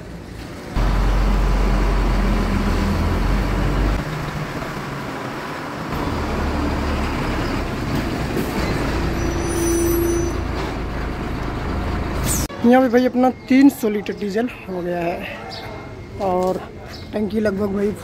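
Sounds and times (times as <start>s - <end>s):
truck diesel engine rumbling: 0.0s - 12.6s.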